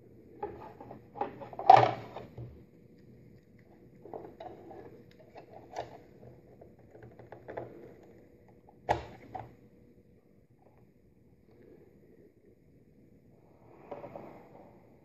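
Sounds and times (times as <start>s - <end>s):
plastic clicks and rustles: 0.4s - 9.5s.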